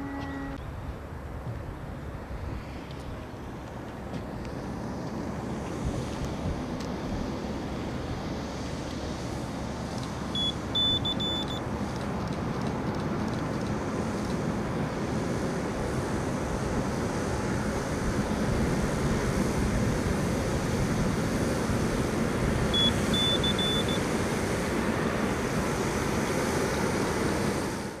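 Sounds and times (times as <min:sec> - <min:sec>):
short high beeps: 0:10.4 - 0:11.6, 0:22.8 - 0:24.0.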